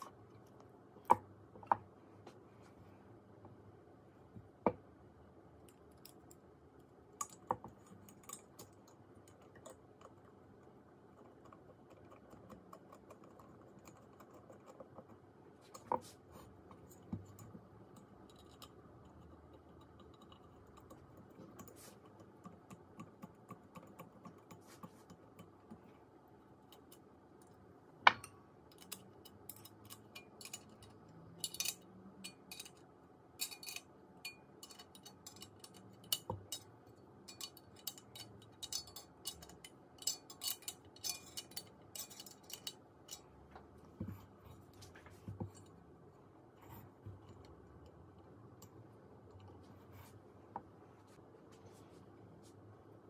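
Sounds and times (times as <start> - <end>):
small metal parts clicking: 33.4 - 33.9.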